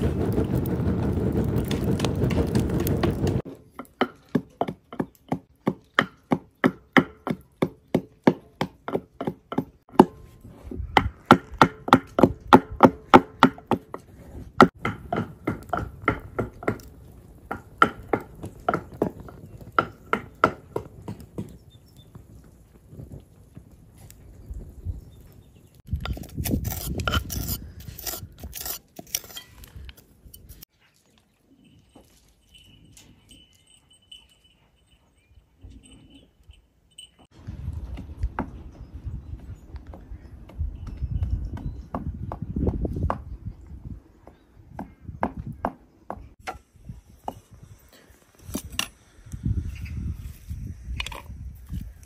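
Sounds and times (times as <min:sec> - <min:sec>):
wood fire crackling: 0:00.0 - 0:03.8, 0:14.7 - 0:30.7
pestle pounding in wooden mortar: 0:00.0 - 0:10.2, 0:14.6 - 0:16.8.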